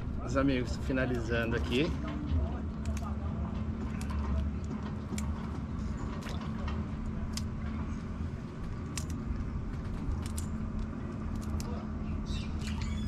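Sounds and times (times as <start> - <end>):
steady low hum: 0.0 - 13.0
crab shells cracking: 2.8 - 3.1, 8.4 - 13.0.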